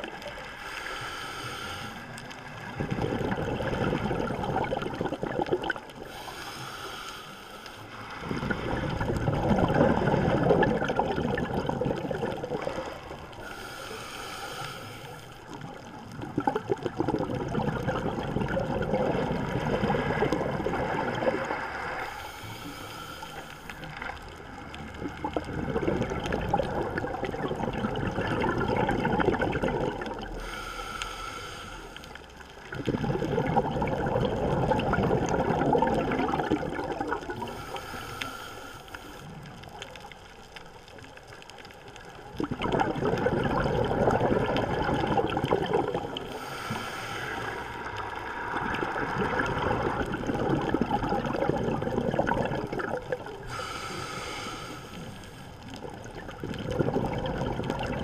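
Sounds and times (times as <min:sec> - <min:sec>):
regulator hissing inhalation: 0:00.6 - 0:02.2, 0:13.4 - 0:15.4, 0:30.4 - 0:32.1, 0:37.5 - 0:39.3, 0:46.2 - 0:47.9, 0:53.4 - 0:55.5
bubbling exhalations underwater: 0:02.7 - 0:06.1, 0:08.2 - 0:13.2, 0:15.7 - 0:22.0, 0:24.9 - 0:30.4, 0:32.6 - 0:37.6, 0:42.2 - 0:54.4, 0:55.6 - 0:58.0.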